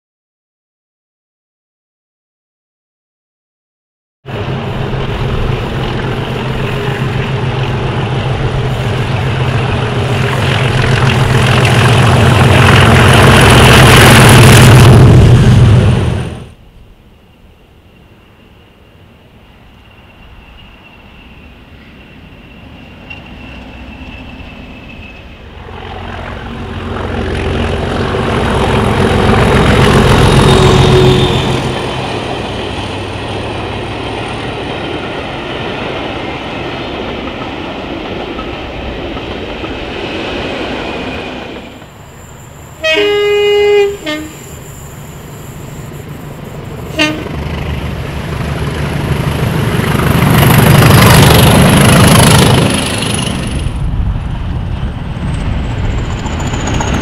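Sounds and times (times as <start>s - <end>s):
trains passing: 4.3s - 57.0s
train horn: 28.1s - 32.0s, 42.8s - 44.6s, 46.9s - 47.4s.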